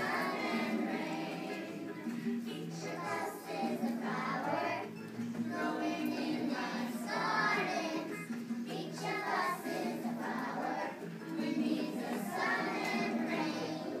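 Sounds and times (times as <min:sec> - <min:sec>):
children singing: 0:00.0 - 0:14.0.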